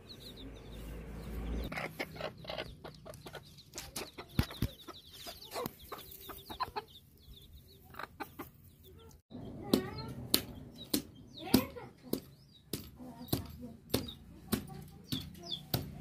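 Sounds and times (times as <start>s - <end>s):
chickens clucking: 0.0s - 12.5s.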